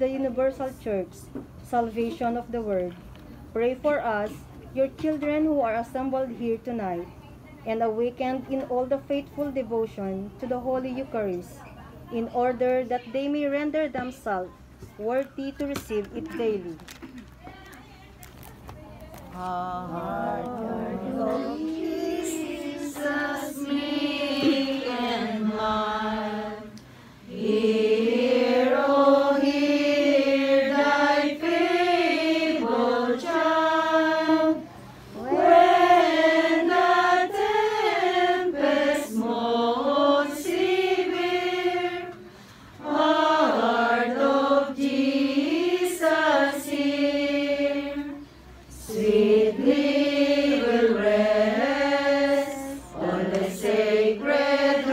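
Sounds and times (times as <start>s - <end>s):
group singing a slow hymn: 19.4s - 54.9s.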